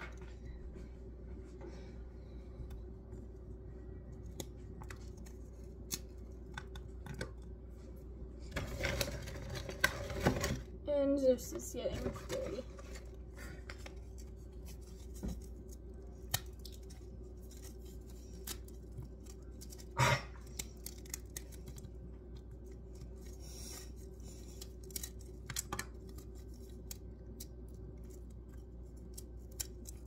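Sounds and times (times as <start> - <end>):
low hum: 0.0 - 30.0
treat bar crumbling crackles: 2.3 - 7.7, 12.0 - 30.0.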